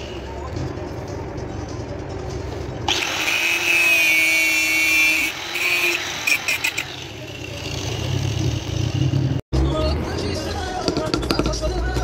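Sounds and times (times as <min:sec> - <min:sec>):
angle grinder grinding steel: 0:02.9 - 0:09.4.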